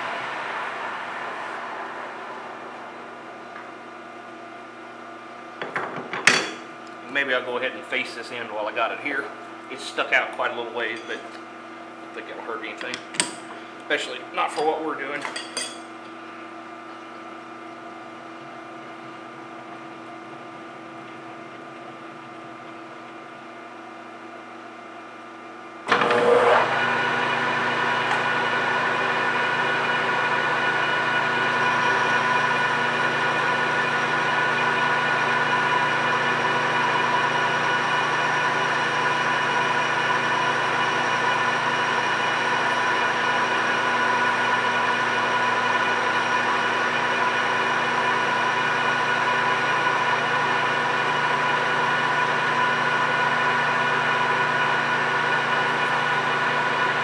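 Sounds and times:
lathe running with whining tones: 0:00.0 - 0:05.7, 0:25.9 - 0:57.0.

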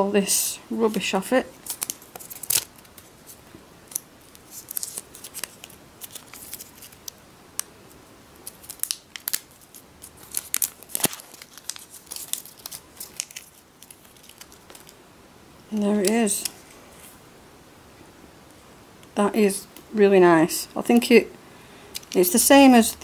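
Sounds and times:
plastic film crinkling and tearing: 0:01.5 - 0:07.7, 0:08.4 - 0:15.0, 0:21.9 - 0:22.4.

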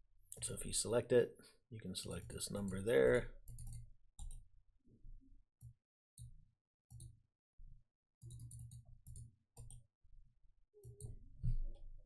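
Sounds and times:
computer mouse clicking: 0:03.5 - 0:04.4, 0:06.9 - 0:07.1, 0:08.2 - 0:09.8.

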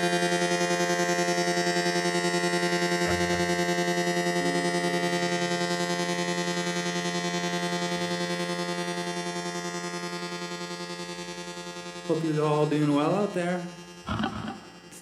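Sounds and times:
pulsing guitar drone: 0:00.0 - 0:12.1, 0:13.7 - 0:15.0.

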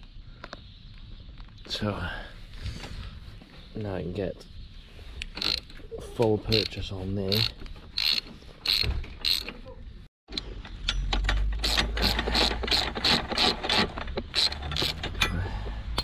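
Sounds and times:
socket ratchet clicking: 0:05.4 - 0:05.7, 0:06.5 - 0:09.5, 0:11.6 - 0:15.2.

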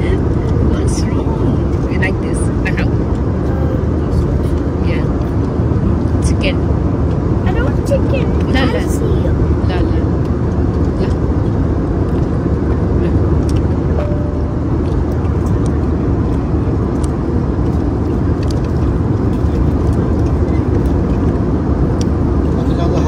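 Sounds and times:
airliner cabin rumble: 0:00.0 - 0:23.0.

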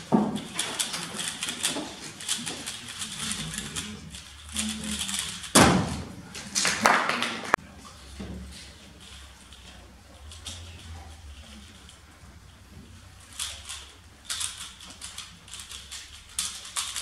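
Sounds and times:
plastic puzzle cube clicking: 0:13.3 - 0:17.0.

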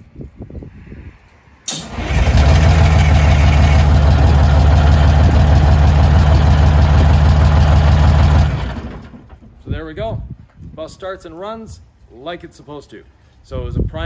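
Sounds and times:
diesel bus engine idling: 0:01.8 - 0:09.3.

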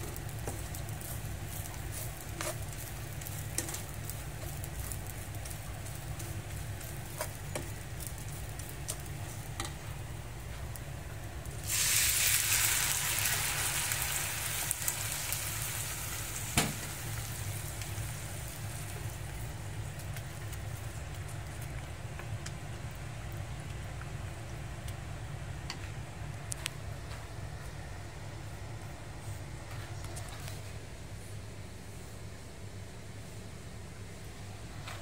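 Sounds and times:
water sizzling in hot pan: 0:00.0 - 0:21.0
low steady hum: 0:00.0 - 0:35.0.

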